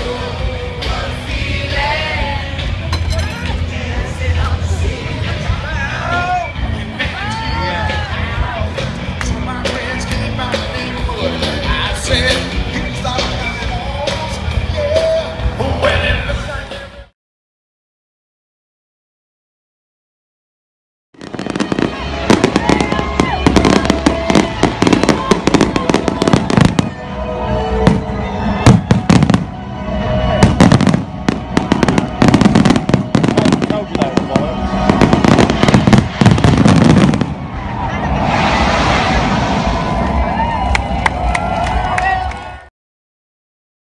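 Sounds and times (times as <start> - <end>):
loud live band with singer: 0.0 - 17.1
fireworks crackling bangs: 21.2 - 27.0, 27.9 - 29.6, 30.4 - 40.4.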